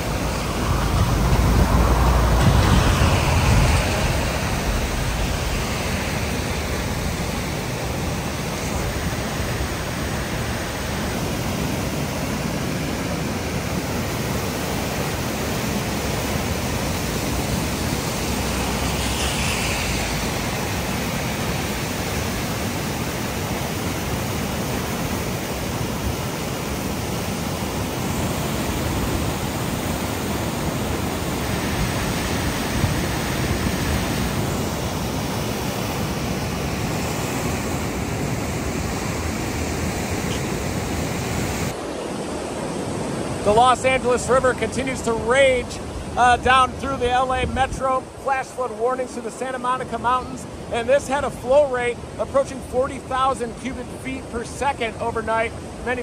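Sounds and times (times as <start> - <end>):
low rumble: 0.0 - 10.5, 17.9 - 21.4
river water rushing: 0.0 - 56.0.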